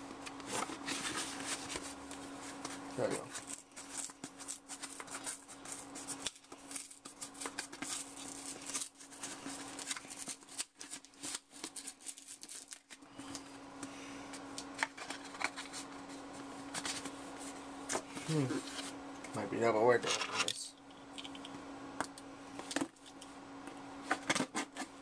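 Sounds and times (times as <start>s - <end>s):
faint steady hum: 0.0s - 25.0s
plastic packaging crinkling: 0.4s - 13.4s.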